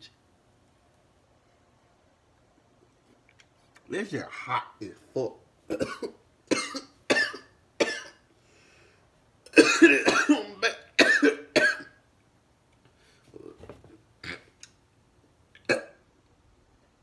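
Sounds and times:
man coughing: 5.7 - 8.2, 9.5 - 12.0.

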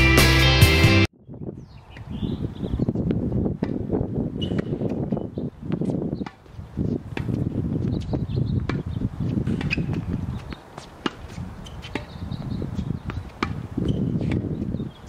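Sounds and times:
tennis ball hitting racket: 3.6 - 7.6, 8.6 - 14.8.

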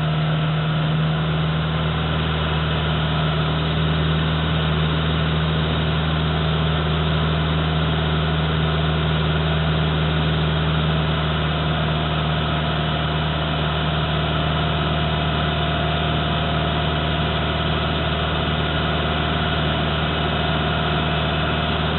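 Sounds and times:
tractor diesel engine idling: 0.0 - 21.9.

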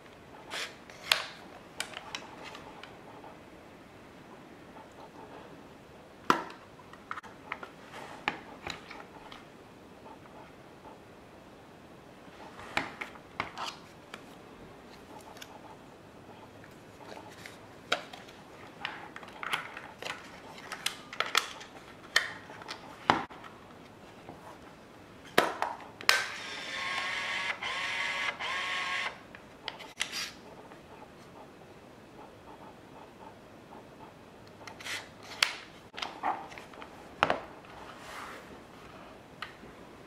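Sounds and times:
camera motor whirring: 26.2 - 29.2.

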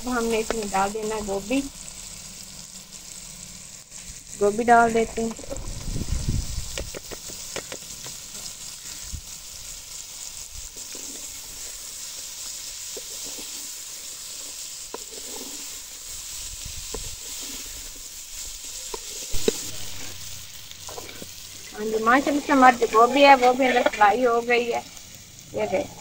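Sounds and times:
food sizzling in oil: 0.0 - 26.0
metal ladle scraping pot: 14.9 - 15.8.

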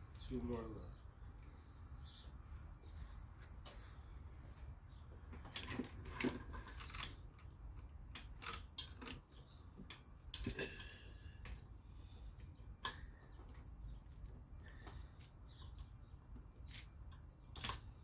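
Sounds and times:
metal valve parts clinking: 17.5 - 18.0.

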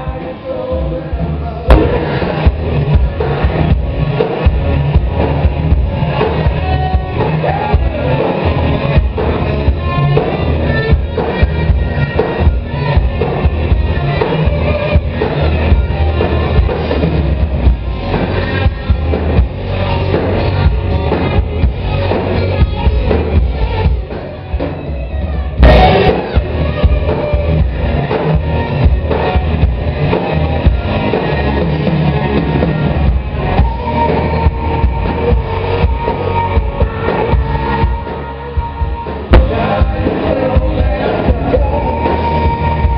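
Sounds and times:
live rock band playing: 0.0 - 42.9
sudden loud drum hit: 1.7 - 3.2, 25.6 - 26.5.

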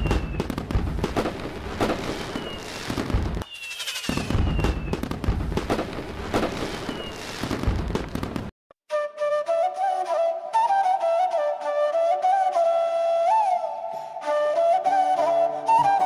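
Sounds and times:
falling firework whistles: 0.0 - 8.3
fireworks crackling and popping: 0.0 - 8.6.

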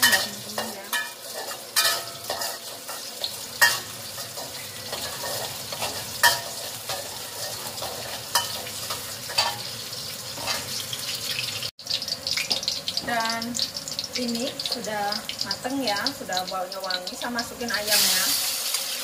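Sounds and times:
spatula scraping a wok: 0.0 - 11.2
food sizzling in hot oil: 0.0 - 19.0.

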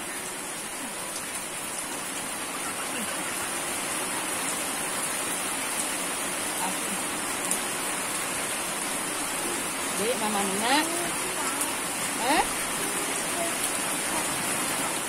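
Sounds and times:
rushing water: 0.0 - 15.0
faint voices: 9.2 - 15.0.

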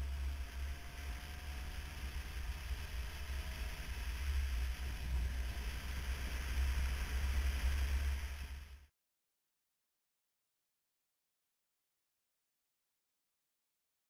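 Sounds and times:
road and wind hiss: 0.0 - 8.9.

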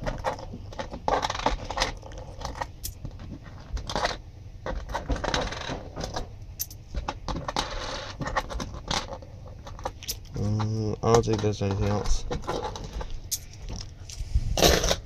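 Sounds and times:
coins sliding across table: 7.6 - 8.2.

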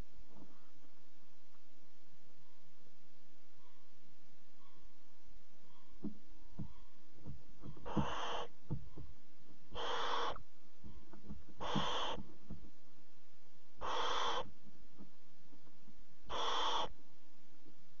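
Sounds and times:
scratches and knocks in nest box: 6.0 - 9.2
owl chicks hissing calls: 7.6 - 8.6, 9.7 - 12.3, 13.8 - 14.6, 16.3 - 17.0.

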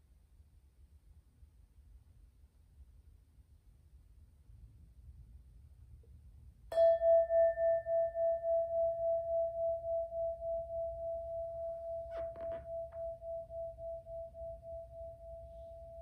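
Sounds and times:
singing bowl ringing: 6.7 - 16.0.

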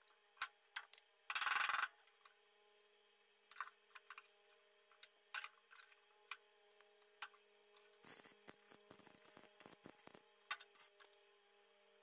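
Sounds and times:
steady low hum: 0.0 - 12.0
welding crackle: 7.9 - 10.9.

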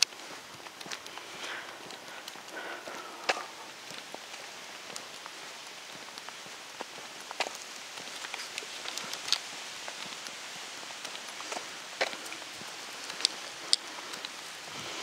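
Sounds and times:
outdoor hiss: 0.0 - 15.0
light clicks and taps: 13.0 - 14.4.

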